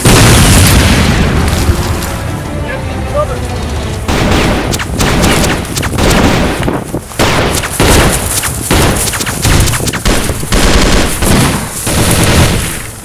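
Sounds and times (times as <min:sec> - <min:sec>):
automatic rifle gunfire: 0:04.1 - 0:12.9.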